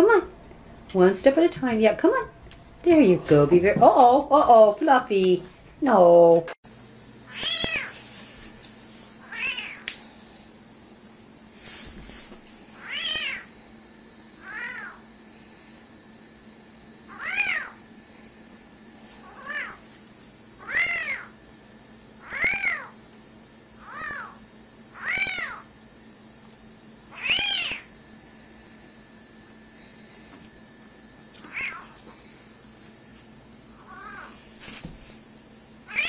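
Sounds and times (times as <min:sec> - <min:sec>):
kitten meowing: 0:07.3 - 0:07.9, 0:09.2 - 0:09.8, 0:12.8 - 0:13.5, 0:14.4 - 0:15.0, 0:17.1 - 0:17.8, 0:19.2 - 0:19.8, 0:20.6 - 0:21.3, 0:22.2 - 0:22.9, 0:23.8 - 0:24.4, 0:25.0 - 0:25.7, 0:27.1 - 0:27.9, 0:31.4 - 0:32.0, 0:33.9 - 0:34.4.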